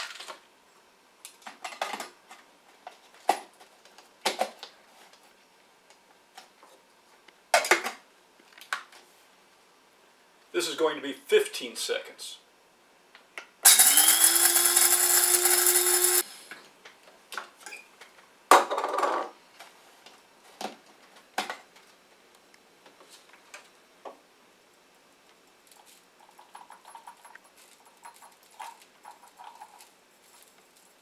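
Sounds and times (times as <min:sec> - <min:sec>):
blade coffee grinder running: 0:13.6 - 0:16.5.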